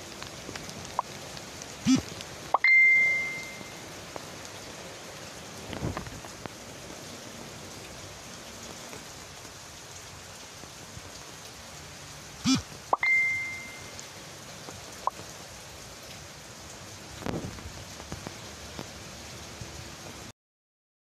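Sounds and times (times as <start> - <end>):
rain on trees and roofs: 0.0 - 20.3
sharp ding: 2.6 - 3.7, 13.0 - 13.9.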